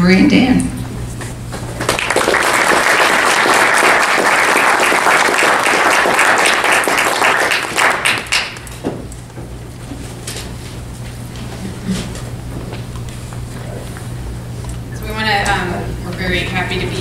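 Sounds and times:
audience applauding: 1.8s - 8.7s.

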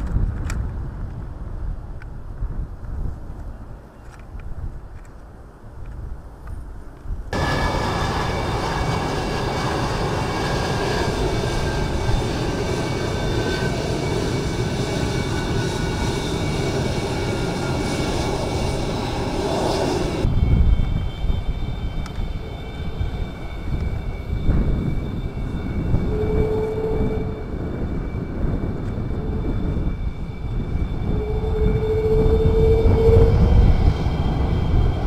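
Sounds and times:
jet engines running: 7.3s - 35.0s.

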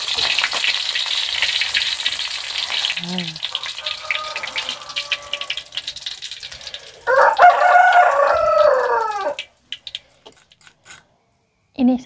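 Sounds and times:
rooster crowing: 3.5s - 5.9s, 6.8s - 9.5s.

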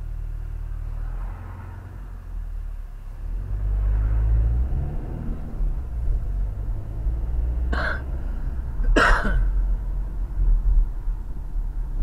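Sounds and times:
car engine and road rumble: 0.0s - 12.0s
short throat sounds: 7.8s - 8.1s.

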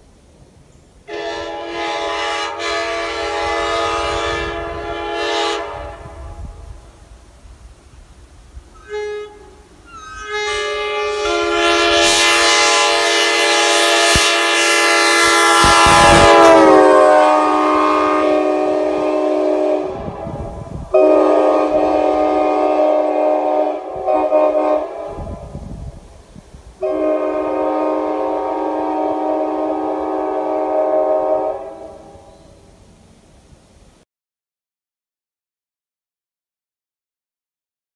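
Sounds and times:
vehicle air horn chord: 1.1s - 6.7s, 8.8s - 25.5s, 26.8s - 32.5s.

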